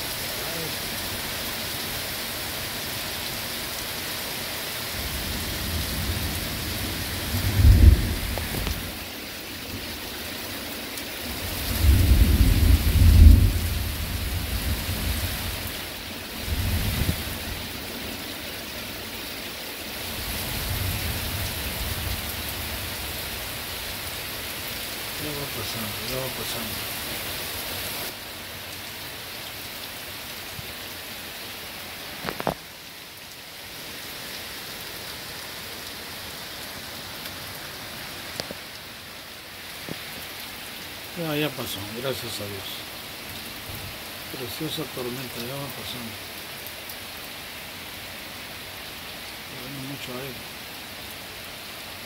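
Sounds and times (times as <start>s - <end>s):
heavy rain pouring: 0.0s - 52.0s
low thunder rumbles: 5.0s - 9.0s, 11.3s - 15.7s, 16.4s - 17.6s.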